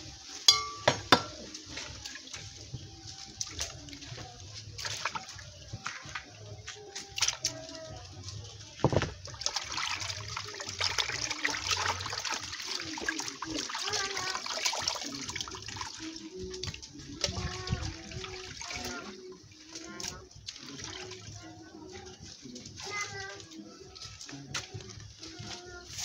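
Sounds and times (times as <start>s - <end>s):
water splashing and dripping: 0.0s - 26.0s
water streaming into pot: 0.0s - 26.0s.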